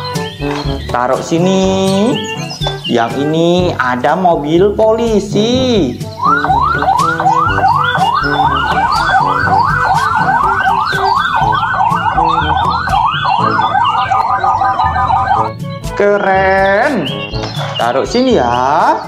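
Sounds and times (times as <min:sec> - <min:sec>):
police siren yelping: 0:06.0 - 0:18.0.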